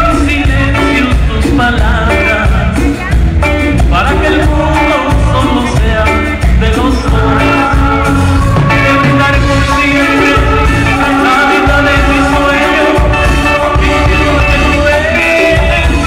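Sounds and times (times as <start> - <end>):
congas: 0.0 - 16.0
live latin band playing: 0.0 - 16.0.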